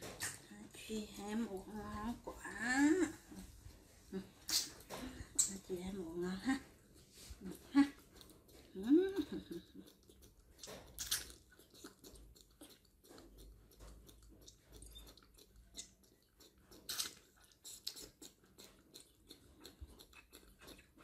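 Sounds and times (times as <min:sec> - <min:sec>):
monkeys sucking from bottles: 0:04.2 - 0:05.6, 0:07.3 - 0:18.8
wet clicks and smacks: 0:09.9 - 0:21.0.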